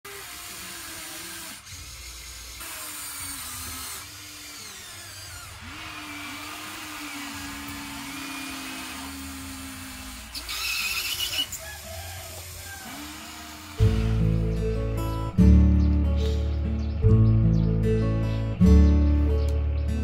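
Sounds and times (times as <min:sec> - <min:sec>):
small electric motors whining: 0:00.0 - 0:14.2.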